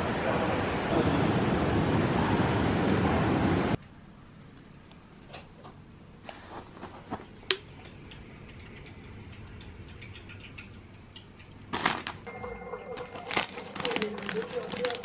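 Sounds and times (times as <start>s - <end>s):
crisp packet rustling: 11.7s - 12.3s, 12.9s - 15.0s.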